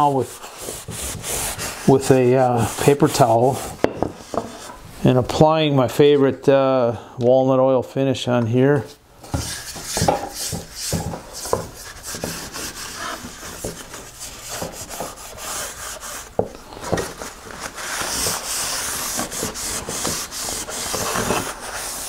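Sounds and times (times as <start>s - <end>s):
paper towel rubbing wood: 0.0s - 4.8s, 9.4s - 16.4s, 17.0s - 22.0s.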